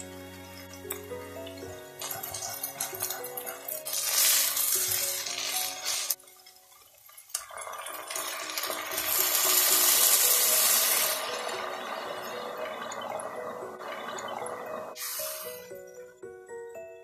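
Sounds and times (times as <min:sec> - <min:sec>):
background music: 0:00.0 - 0:17.0
onion sizzling in a pot: 0:00.1 - 0:13.9
water poured into hot pot: 0:00.5 - 0:16.0
spatula stirring: 0:02.0 - 0:06.9.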